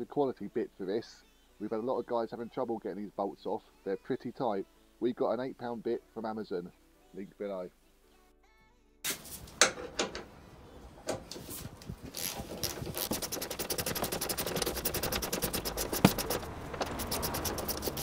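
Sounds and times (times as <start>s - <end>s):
bit scraping and knocking on bolt: 12.2s - 18.0s
socket ratchet clicking: 12.2s - 18.0s.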